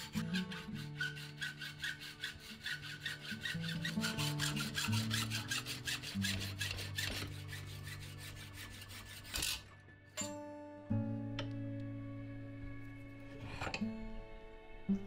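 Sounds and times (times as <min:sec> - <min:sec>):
hacksaw sawing metal: 0:00.0 - 0:09.7
background music: 0:00.0 - 0:15.0.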